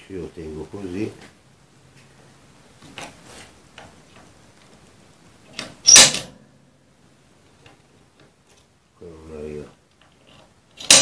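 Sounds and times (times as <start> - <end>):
metal parts clicking on workbench: 5.5 - 6.3, 10.0 - 11.0
metal parts clattering: 10.8 - 11.0.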